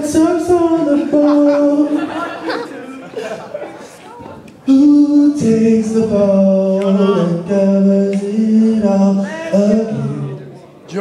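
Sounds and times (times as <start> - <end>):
man singing a cappella: 0.0 - 2.2, 4.6 - 10.5.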